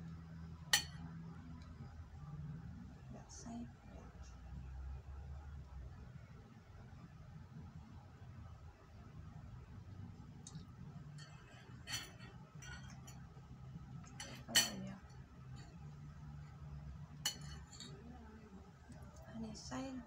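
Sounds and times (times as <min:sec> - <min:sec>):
cutlery clinking on ceramic bowl: 0:00.7 - 0:01.0, 0:11.1 - 0:13.3, 0:14.0 - 0:15.0, 0:17.2 - 0:18.0.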